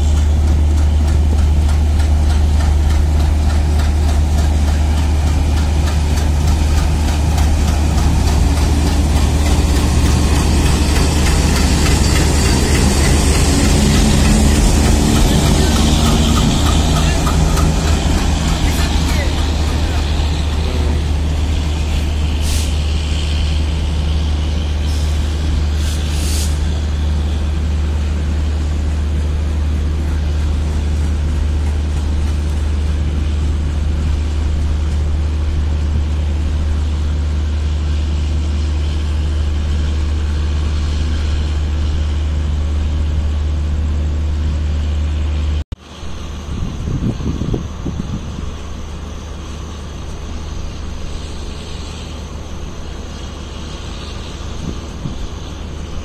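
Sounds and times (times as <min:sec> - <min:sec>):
diesel locomotive engine drone: 0:00.0 - 0:56.0
compressed air brake hisses: 0:22.4 - 0:23.3, 0:24.8 - 0:26.7.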